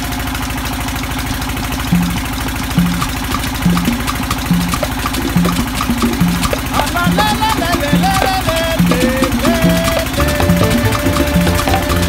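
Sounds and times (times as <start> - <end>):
boat engine droning: 1.3 - 12.0
background music: 10.2 - 12.0.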